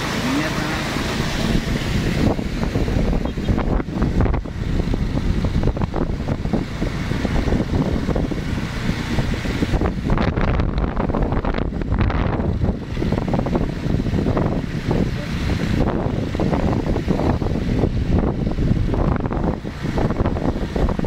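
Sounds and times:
moving vehicle rumble: 0.0s - 21.0s
wind buffeting microphone: 0.9s - 21.0s.

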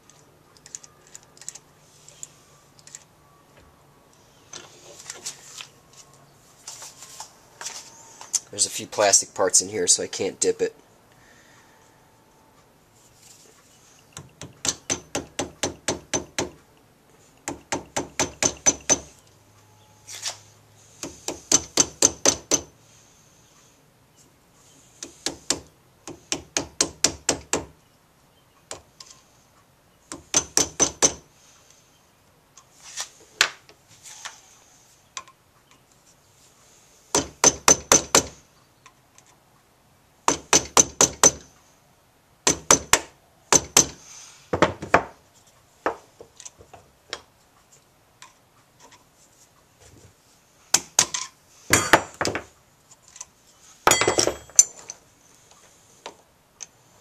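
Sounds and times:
hammer tapping metal punch: 14.1s - 16.6s, 17.4s - 19.2s, 21.0s - 22.7s, 30.1s - 31.2s.

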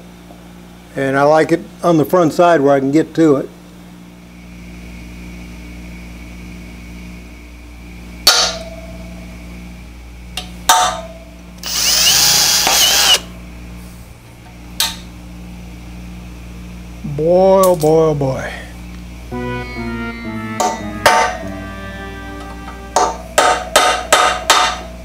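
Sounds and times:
hammer striking metal punch: 8.3s - 8.9s, 10.7s - 11.2s, 20.6s - 21.5s, 22.9s - 25.0s
cordless drill boring into metal: 11.6s - 13.3s.

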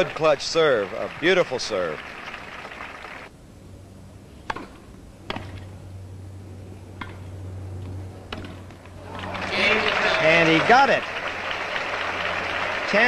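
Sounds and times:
low steady hum: 0.0s - 13.0s
tennis ball struck by rackets: 4.5s - 5.7s, 8.3s - 8.7s.

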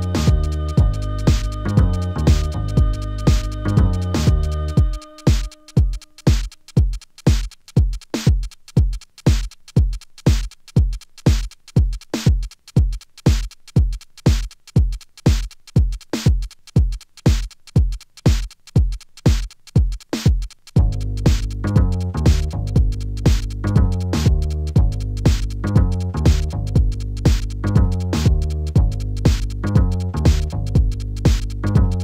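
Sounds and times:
bass and chords: 0.0s - 6.2s, 20.8s - 32.0s
kick drum: 0.0s - 32.0s
light percussion: 0.0s - 32.0s.

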